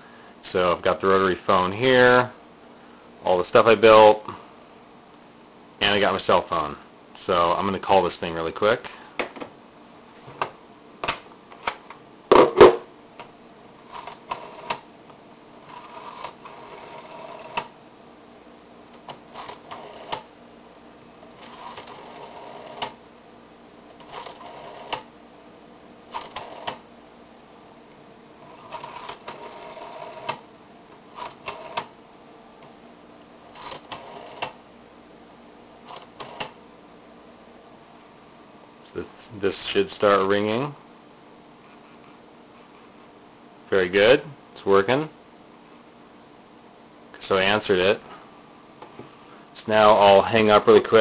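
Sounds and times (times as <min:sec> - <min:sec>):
loud clunk: 0:12.3 - 0:12.9.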